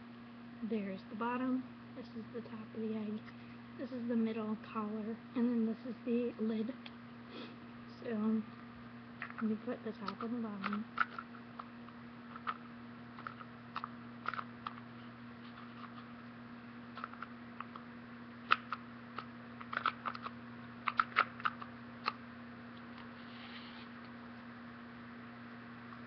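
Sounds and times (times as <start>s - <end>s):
plastic parts clicking: 10.0s - 11.7s, 13.2s - 14.8s, 17.0s - 17.8s, 18.5s - 22.2s.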